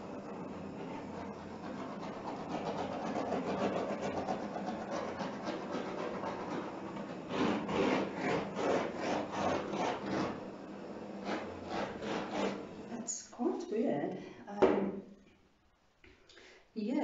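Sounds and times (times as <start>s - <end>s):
gas torch flame hissing: 0.0s - 13.4s.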